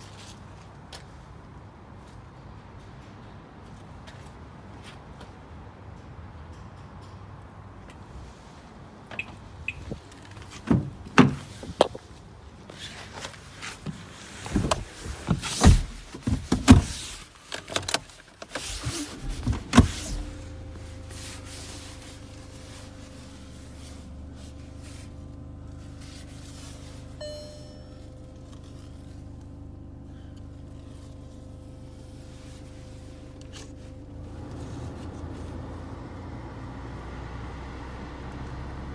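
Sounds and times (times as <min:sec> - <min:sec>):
car door shutting: 0:09.1 - 0:12.0, 0:13.9 - 0:22.0
car door knocks and clicks: 0:10.6 - 0:12.0
rustling: 0:11.4 - 0:35.8
diesel engine idling: 0:19.1 - 0:38.9
electronic beep: 0:27.2 - 0:28.0.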